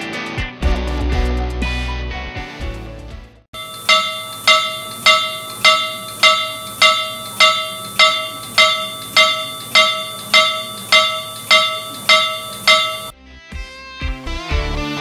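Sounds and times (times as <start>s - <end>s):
steam engine bell ringing: 3.6s - 13.1s.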